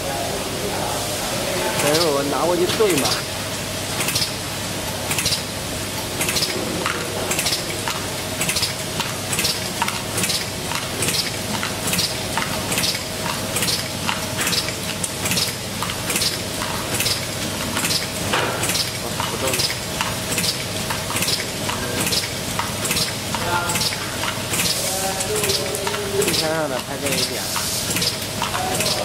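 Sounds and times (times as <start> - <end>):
pneumatic cylinders hissing: 17.8 - 29.0.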